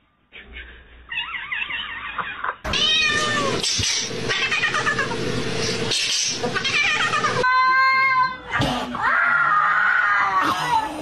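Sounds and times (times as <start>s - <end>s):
cats meowing and yowling: 1.1s - 3.6s, 4.3s - 5.2s, 6.6s - 8.4s.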